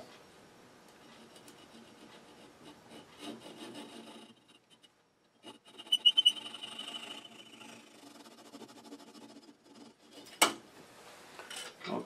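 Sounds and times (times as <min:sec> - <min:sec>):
saw cutting wood: 0:01.7 - 0:04.6, 0:05.5 - 0:10.2.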